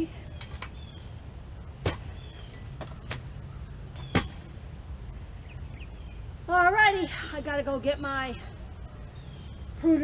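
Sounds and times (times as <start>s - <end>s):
post-hole digger thudding: 1.8s - 2.2s, 4.0s - 4.5s.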